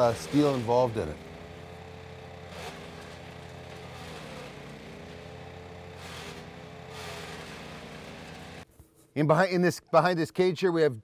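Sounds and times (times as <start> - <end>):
branches being chipped: 0.0 - 8.6
wood chipper engine running: 0.0 - 8.7.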